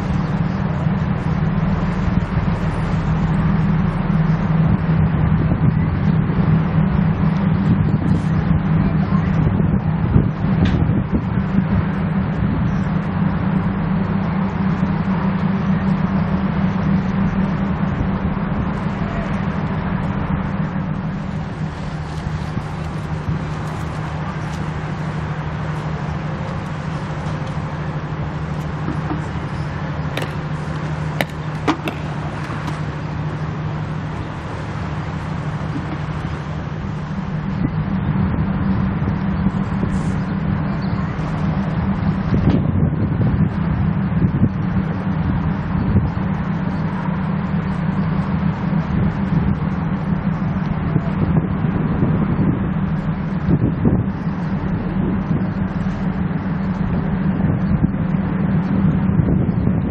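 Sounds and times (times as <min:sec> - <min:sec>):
low engine drone: 0:00.0 - 0:59.9
wind and water rushing: 0:20.2 - 0:46.2.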